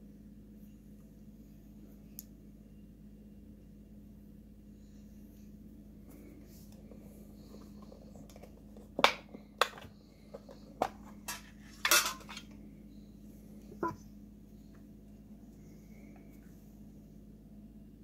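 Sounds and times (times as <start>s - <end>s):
metal tin clicking and clinking: 11.2s - 12.5s.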